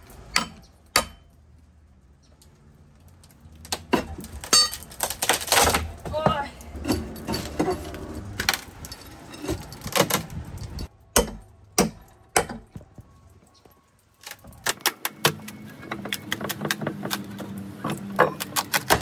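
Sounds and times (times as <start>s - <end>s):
hammer striking wood: 11.2s - 12.8s.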